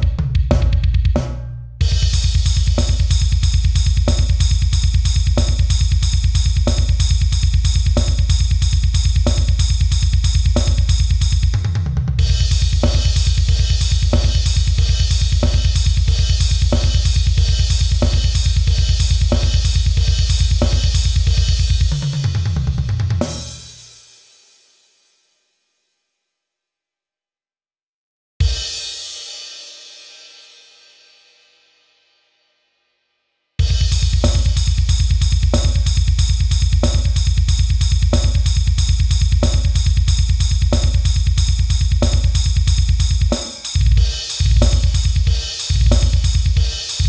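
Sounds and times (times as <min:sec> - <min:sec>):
heavy metal drum kit playing: 0:00.0 - 0:24.4, 0:28.4 - 0:29.2, 0:33.6 - 0:47.0
tom fill: 0:00.0 - 0:24.4, 0:33.6 - 0:47.0
crash and china cymbal hits: 0:23.2 - 0:25.5.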